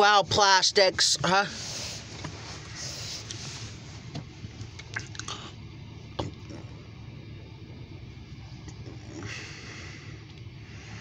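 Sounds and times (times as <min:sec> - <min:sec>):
vehicle cabin hum: 0:00.0 - 0:11.0
faint clicks and rustles: 0:01.7 - 0:05.4.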